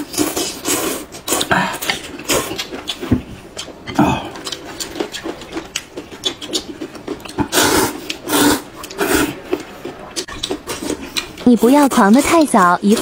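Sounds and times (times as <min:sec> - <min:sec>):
people slurping noodles: 0:00.0 - 0:02.8, 0:03.9 - 0:05.4, 0:06.6 - 0:13.0
chewing mouth clicks and smacks: 0:01.3 - 0:08.2, 0:08.8 - 0:11.4.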